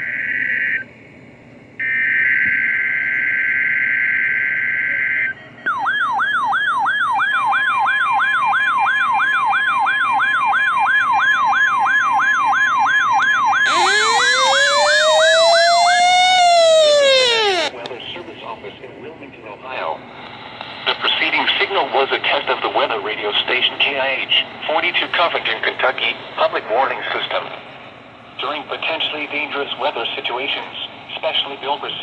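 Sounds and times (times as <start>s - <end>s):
slow siren wail: 1.8s - 17.7s
steady warning alarm tone: 1.8s - 17.7s
sweeping alert siren: 1.8s - 17.7s.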